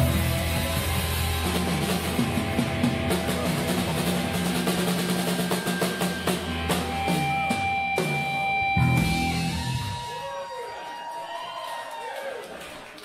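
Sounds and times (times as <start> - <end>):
background music: 0.0 - 10.2
drum kit playing: 0.0 - 10.3.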